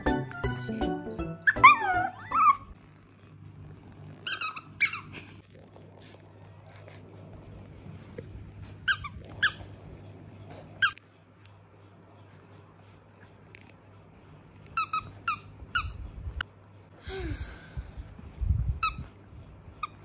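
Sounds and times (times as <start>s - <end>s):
faint steady hum: 0.0s - 20.0s
puppy whimpering: 0.2s - 2.8s.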